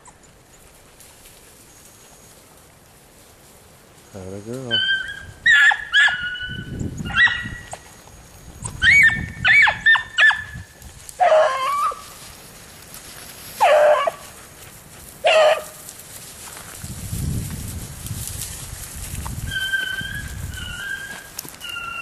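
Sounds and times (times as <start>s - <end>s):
hounds baying: 4.6s - 7.9s, 8.6s - 10.6s, 11.2s - 12.2s, 13.6s - 15.9s, 19.4s - 22.0s
hounds yipping: 4.6s - 7.9s, 8.6s - 12.2s, 13.6s - 14.4s, 15.2s - 15.8s, 19.4s - 22.0s.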